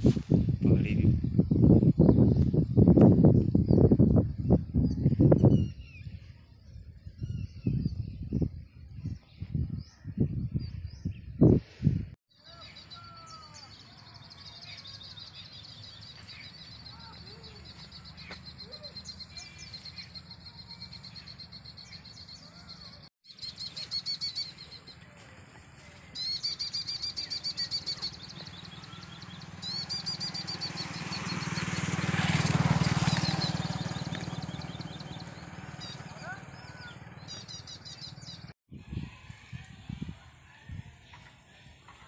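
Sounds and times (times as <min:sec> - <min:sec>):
small birds chirping: 0:00.0 - 0:11.7, 0:12.4 - 0:25.4, 0:26.0 - 0:38.6
low wind rumble: 0:00.0 - 0:12.2
wind gust on microphone: 0:00.0 - 0:12.2, 0:38.4 - 0:41.1
bird calls: 0:12.4 - 0:25.3, 0:26.1 - 0:38.5.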